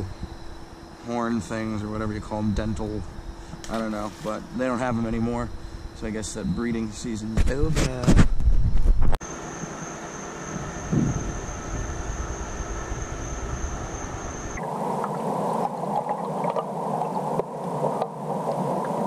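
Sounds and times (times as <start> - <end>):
thin high steady tone: 9.2 - 19.0.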